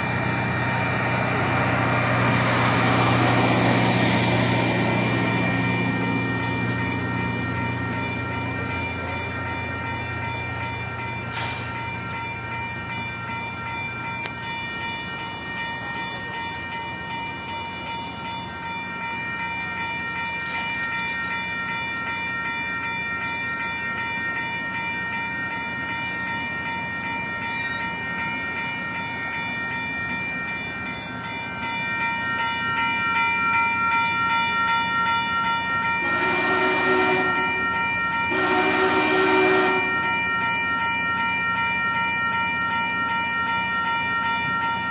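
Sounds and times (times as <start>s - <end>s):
train wheels rumbling: 0.0s - 42.6s
crossing warning bell ringing: 0.0s - 44.9s
steam whistle blasts: 36.0s - 37.4s, 38.3s - 39.9s.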